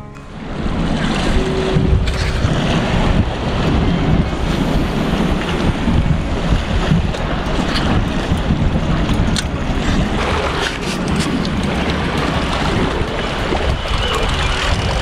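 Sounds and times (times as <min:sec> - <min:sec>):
wind buffeting microphone: 0:00.0 - 0:15.0
waves washing against rocks: 0:00.3 - 0:15.0.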